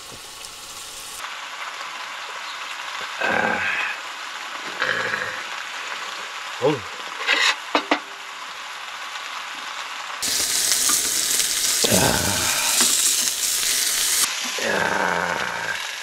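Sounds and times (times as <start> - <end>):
steak sizzling in a pan: 0.0 - 16.0.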